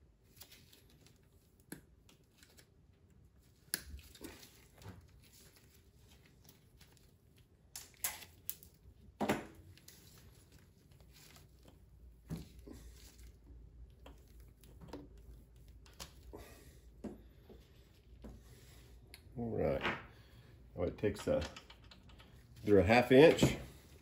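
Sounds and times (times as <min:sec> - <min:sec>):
sharp clicks and knocks: 0:21.1 - 0:22.4.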